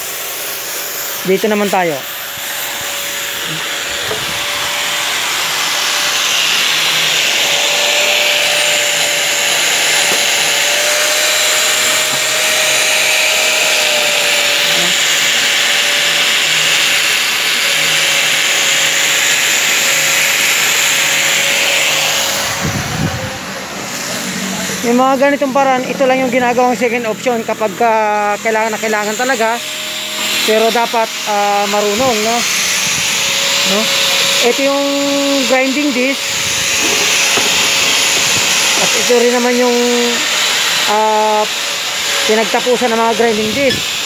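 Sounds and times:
angle grinder grinding steel: 0.0 - 44.0.

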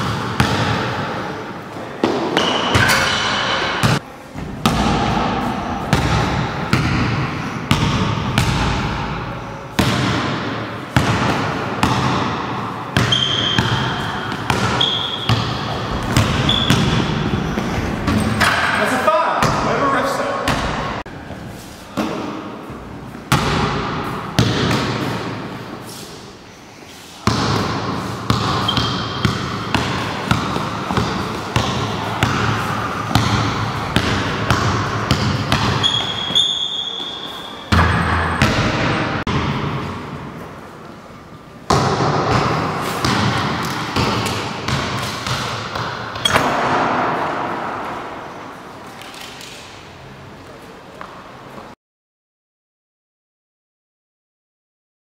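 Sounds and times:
basketball bouncing on hall floor: 0.0 - 1.3, 2.0 - 19.8, 20.4 - 25.6, 27.2 - 40.6, 41.6 - 48.3
high squeaks: 16.4 - 16.8, 35.8 - 37.7.

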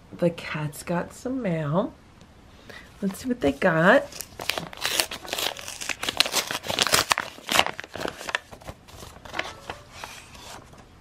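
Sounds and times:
paper envelope tearing and crinkling: 4.0 - 10.8.

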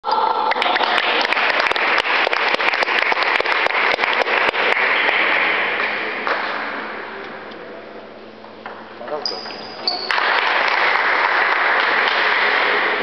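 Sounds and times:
audience applauding: 0.4 - 5.6, 10.1 - 13.0.

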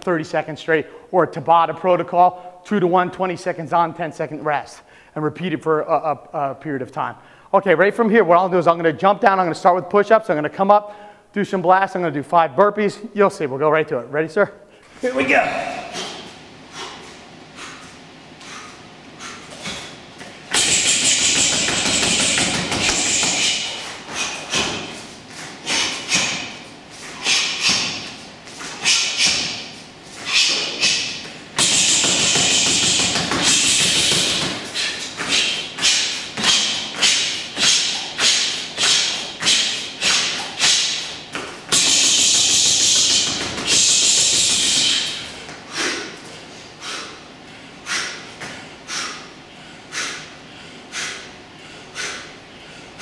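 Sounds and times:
punches smacking a focus mitt: 20.5 - 23.5.

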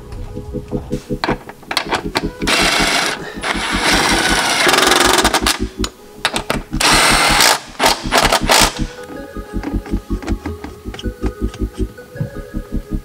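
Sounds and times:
cordless ratchet running: 2.4 - 5.4.

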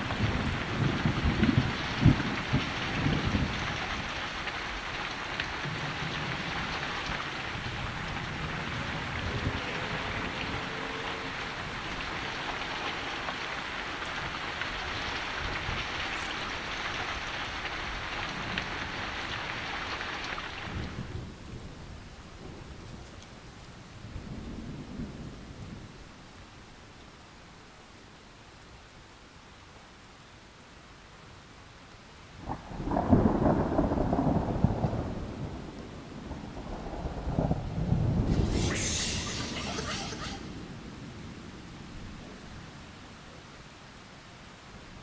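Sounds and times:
low rumbles of thunder: 0.0 - 19.6, 23.8 - 26.1, 32.4 - 42.7
heavy rain pouring: 0.0 - 45.0.

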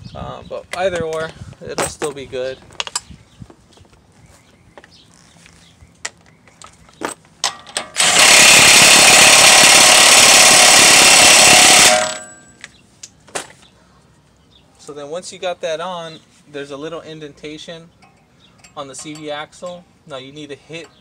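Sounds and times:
impact wrench hammering: 7.4 - 12.6.

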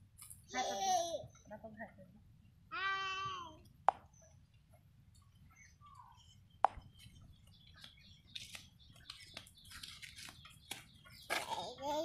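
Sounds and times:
faint bird chirps: 5.2 - 12.0.

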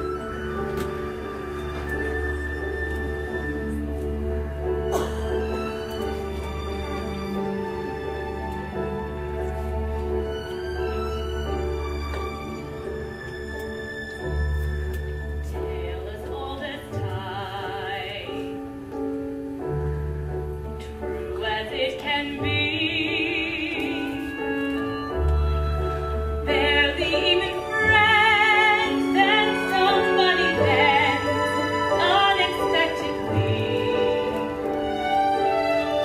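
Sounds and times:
orchestral accompaniment: 0.0 - 36.0
operatic singing: 25.1 - 35.3.

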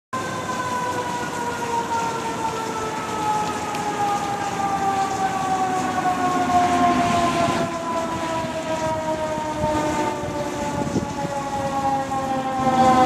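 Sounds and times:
fire engine and traffic noise: 0.1 - 13.0
fire engine siren winding down: 0.2 - 13.0.

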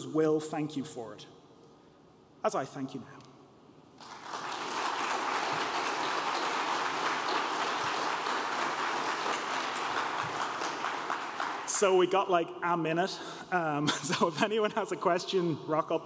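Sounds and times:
audience applauding: 4.0 - 11.9.

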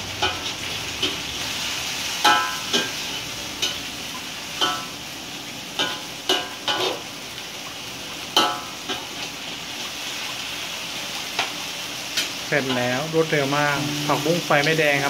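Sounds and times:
vegetables sizzling in a wok: 0.0 - 15.0
spatula scraping and striking wok: 0.1 - 3.8, 5.8 - 7.0.

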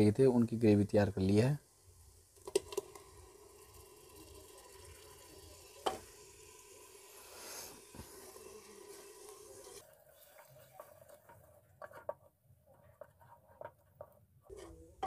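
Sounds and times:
soft sizzle in pan: 0.7 - 11.9.

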